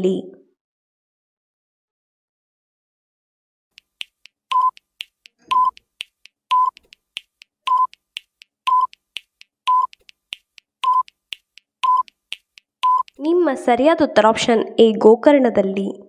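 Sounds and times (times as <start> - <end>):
clock-like timer ticks: 3.7 - 13.4
short beeps: 4.5 - 4.8, 5.5 - 5.8, 6.5 - 6.8, 7.7 - 7.9, 8.7 - 8.9, 9.7 - 9.9, 10.8 - 11.1, 11.8 - 12.1, 12.8 - 13.2.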